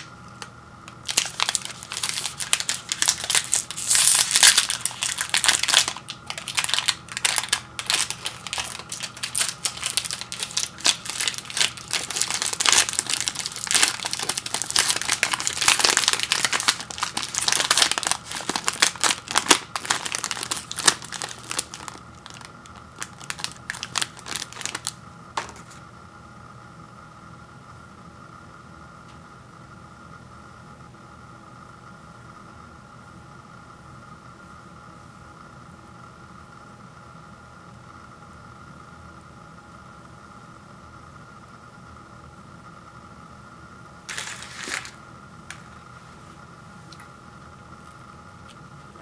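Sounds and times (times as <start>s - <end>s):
wrapper crinkling and tearing: 0.9s - 25.8s, 44.1s - 45.0s.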